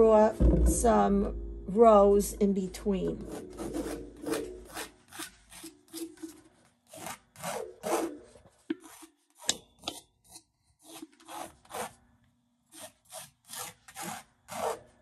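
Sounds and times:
pencil scratching on paper: 3.2s - 6.3s.

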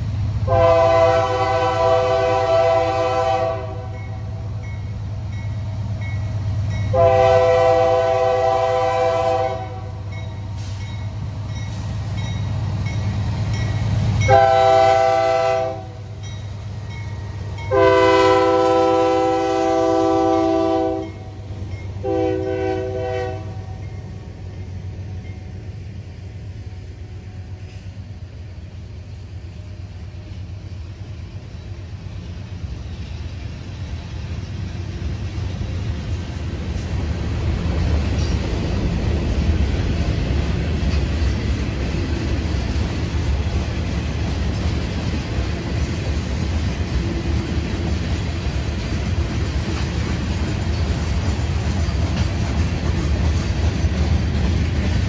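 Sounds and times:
locomotive horn blasts: 0.5s - 4.2s, 6.9s - 10.1s, 14.3s - 16.1s, 17.7s - 21.4s, 22.0s - 23.8s.

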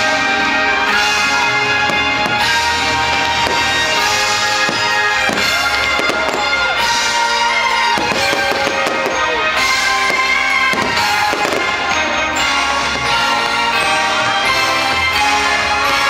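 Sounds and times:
fireworks bursting: 0.0s - 16.0s
loud music: 0.0s - 16.0s.

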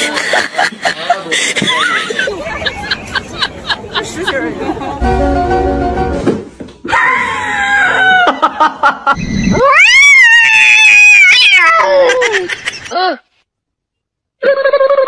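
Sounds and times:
cat yowling: 9.5s - 12.2s.

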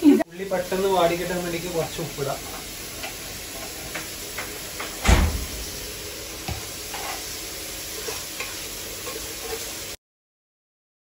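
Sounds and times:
onions sizzling in oil: 0.0s - 10.0s
loud thump: 5.0s - 5.8s
spatula scraping a pot: 6.8s - 7.3s, 7.9s - 9.9s.

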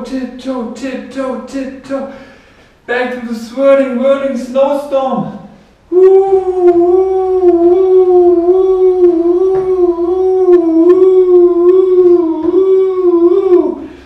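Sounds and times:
man imitating howling wind: 5.9s - 14.0s.

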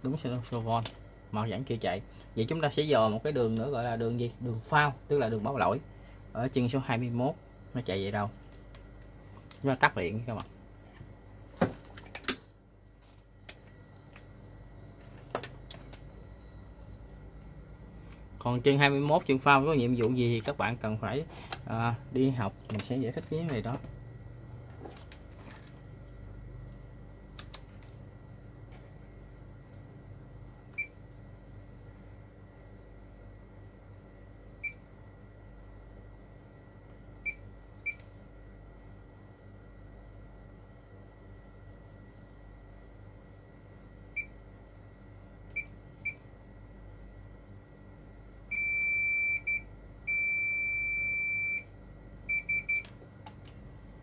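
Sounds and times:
multimeter continuity beeps: 0.0s - 11.6s, 12.8s - 24.7s, 45.5s - 46.3s, 48.5s - 53.0s
steady low hum: 0.0s - 54.0s.

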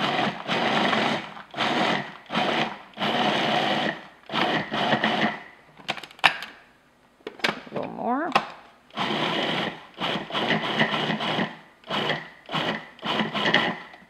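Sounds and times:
food processor pulsing: 0.0s - 5.5s, 8.9s - 14.0s.

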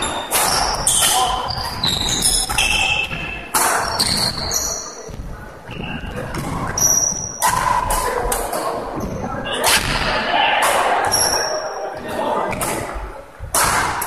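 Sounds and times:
sneakers squeaking on wooden floor: 0.0s - 9.6s, 11.0s - 13.6s
racket striking shuttlecock: 0.1s - 4.5s, 7.4s - 8.6s, 12.5s - 14.0s.

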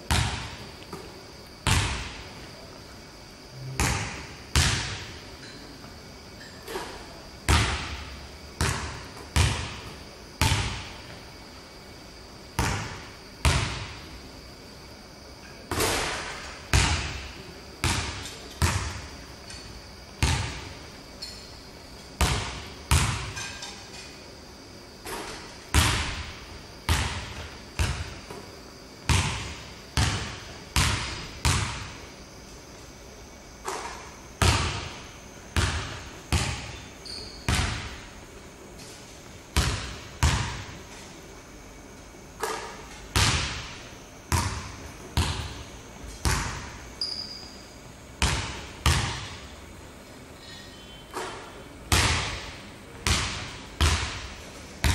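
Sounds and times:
basketball bouncing on hardwood floor: 22.2s - 23.3s, 39.6s - 40.7s, 48.2s - 49.4s, 53.1s - 54.2s.

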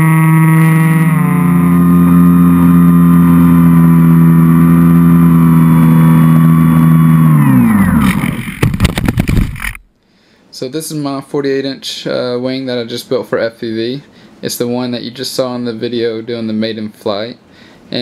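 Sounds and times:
electric propeller motor whine: 0.0s - 9.8s.

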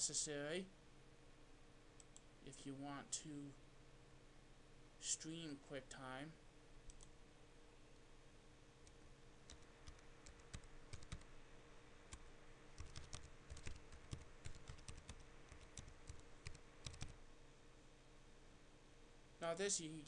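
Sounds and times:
typing on a computer keyboard: 9.5s - 11.3s, 12.8s - 17.2s.

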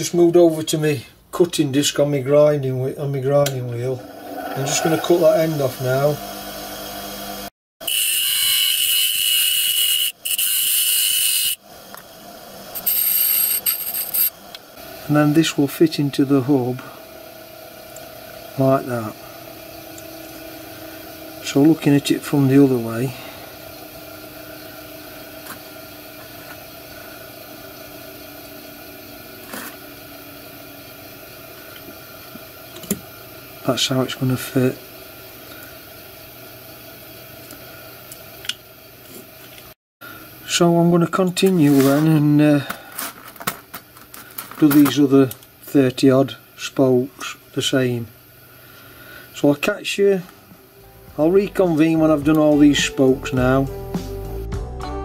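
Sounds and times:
steady background hum: 0.0s - 54.4s
cutting disc grinding metal: 3.5s - 11.6s, 12.7s - 14.6s.

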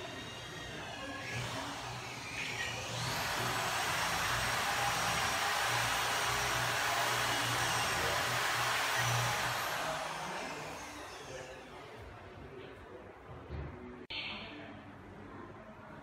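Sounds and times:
whooshing motor noise: 2.8s - 11.4s.

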